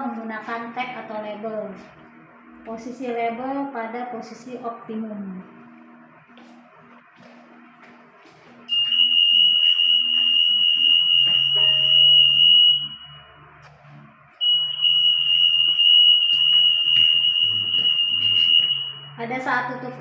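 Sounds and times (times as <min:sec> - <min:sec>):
anti-theft alarm tone: 0:05.4 - 0:20.0.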